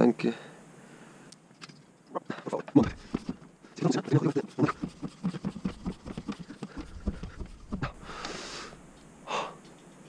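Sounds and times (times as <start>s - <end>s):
floor pump strokes: 2.8s - 8.3s
air hissing: 6.8s - 9.4s.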